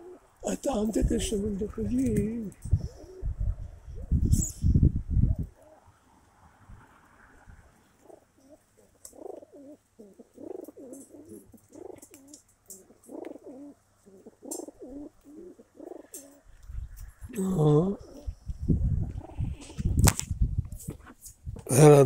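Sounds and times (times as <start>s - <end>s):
pigeons cooing: 0.0s - 1.1s, 2.3s - 5.9s, 7.9s - 16.6s, 17.7s - 20.0s.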